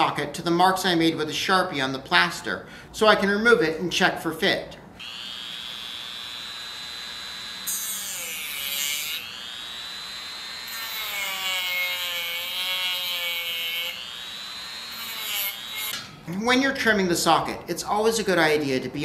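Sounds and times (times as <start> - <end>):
rotary tool whining: 5.0 - 16.1.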